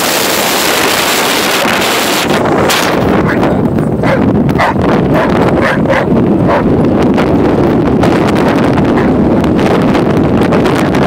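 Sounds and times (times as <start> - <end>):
wind buffeting microphone: 0.0 - 11.0
dogs vocalizing: 2.8 - 6.8.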